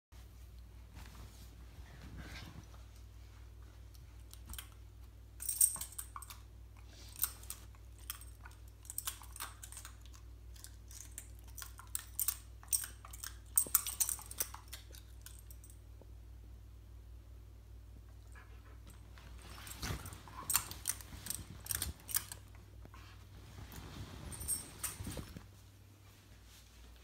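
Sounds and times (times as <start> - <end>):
metal dog tags clicking and jingling: 5.4 - 15.8, 19.4 - 22.6, 24.3 - 25.3.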